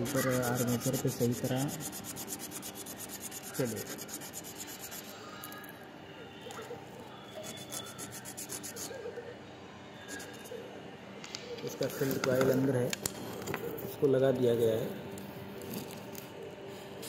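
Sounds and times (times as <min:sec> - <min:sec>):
carbon brushes scratching on abrasive paper: 0:00.0 - 0:05.2, 0:07.3 - 0:09.0.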